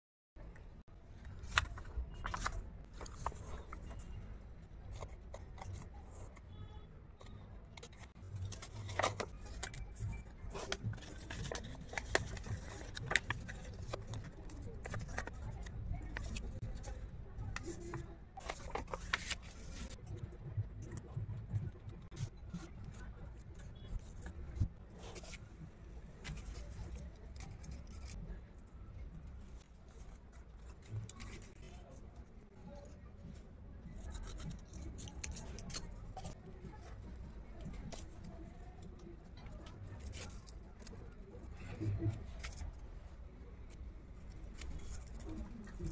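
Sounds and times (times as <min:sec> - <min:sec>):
paper rustling: 0:01.1 - 0:04.3, 0:07.2 - 0:20.0, 0:34.0 - 0:43.2, 0:44.2 - 0:45.9
scissors snipping paper: 0:07.7 - 0:16.7, 0:26.2 - 0:28.3, 0:33.9 - 0:36.4.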